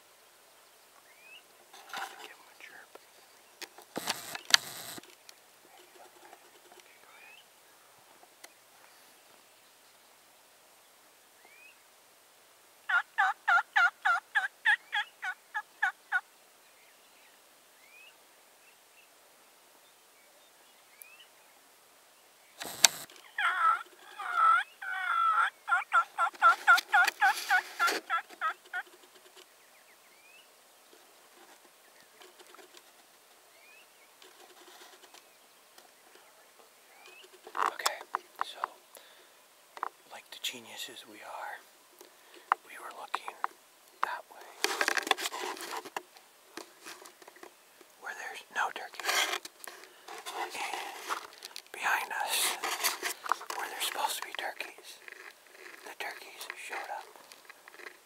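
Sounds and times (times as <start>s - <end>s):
rustling with sharp clicks: 3.6s - 6.9s, 22.6s - 23.2s, 42.0s - 48.0s, 48.9s - 58.0s
wild turkey calling: 12.9s - 16.2s, 22.6s - 29.0s.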